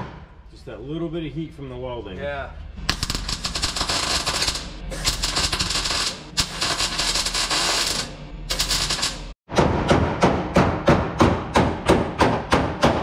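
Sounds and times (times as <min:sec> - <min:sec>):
welder crackling: 0:02.9 - 0:09.4.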